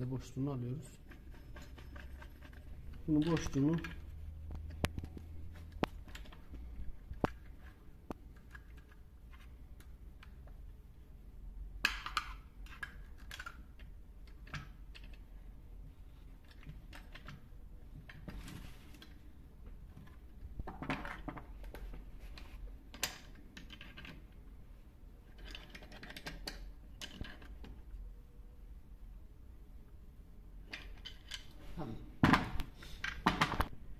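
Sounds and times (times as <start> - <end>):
metal and plastic parts clicking: 11.8 - 15.3, 25.3 - 27.8.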